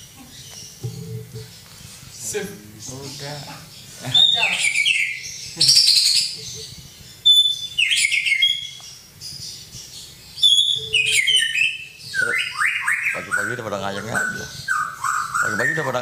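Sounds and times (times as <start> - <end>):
songbird singing: 0.0 - 16.0.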